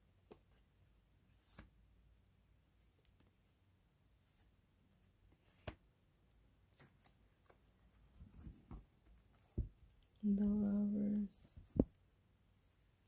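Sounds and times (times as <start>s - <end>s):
cards tapping and rustling: 6.7s - 12.0s.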